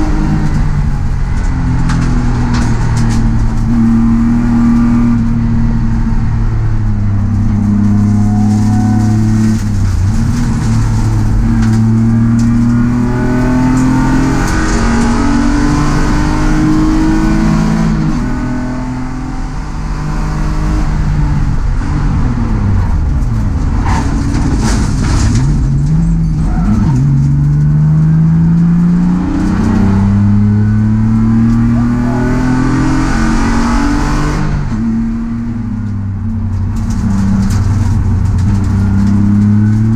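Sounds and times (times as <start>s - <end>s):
race car engine revving: 0.0s - 39.9s.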